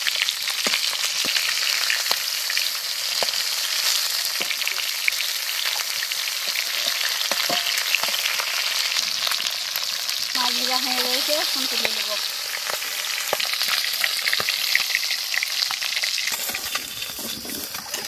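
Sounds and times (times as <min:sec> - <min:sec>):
fish frying in hot oil: 0:00.0 - 0:18.0
metal spatula scraping wok: 0:05.7 - 0:08.6, 0:16.2 - 0:18.0.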